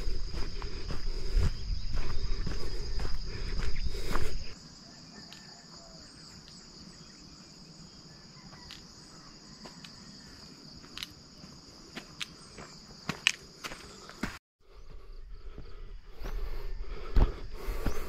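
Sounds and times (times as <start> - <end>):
footstep on dirt path: 0.0 - 4.6, 8.4 - 18.0
insects chirring: 0.0 - 18.0.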